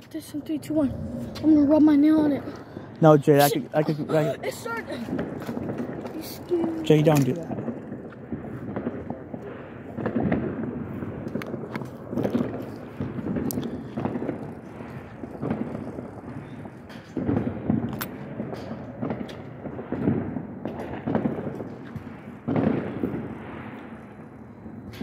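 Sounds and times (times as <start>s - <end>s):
distant firecracker pops: 5.1s - 25.0s.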